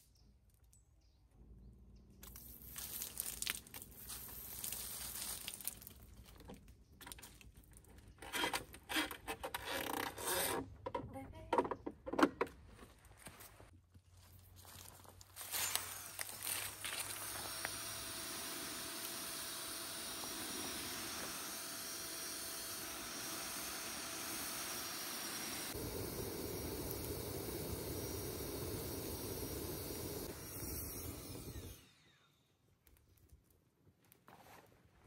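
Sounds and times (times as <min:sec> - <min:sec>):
fire-starting device hissing: 0:02.2 - 0:05.9, 0:14.8 - 0:32.6.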